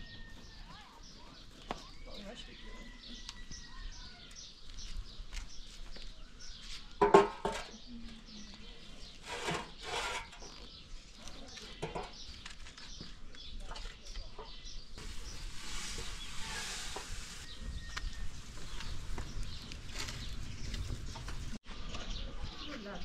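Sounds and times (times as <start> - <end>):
firewood knocking and scraping: 7.0 - 7.8, 9.1 - 21.6.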